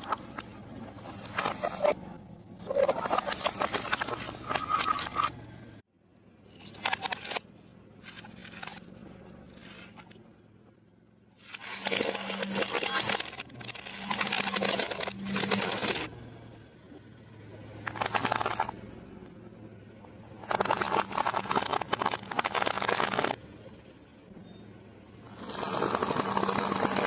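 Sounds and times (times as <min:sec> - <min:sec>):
tyre crushing plastic toys: 0:11.4 - 0:16.1, 0:17.8 - 0:18.8, 0:20.4 - 0:23.4.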